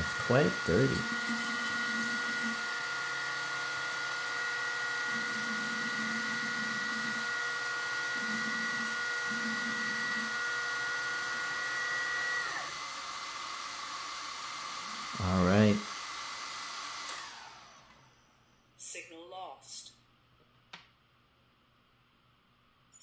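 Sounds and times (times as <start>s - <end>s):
hydraulic pump whining: 0.0s - 18.2s.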